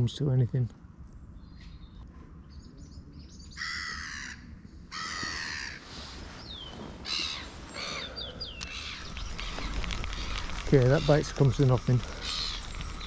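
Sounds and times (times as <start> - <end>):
crow cawing: 3.6 - 5.8, 7.0 - 13.0.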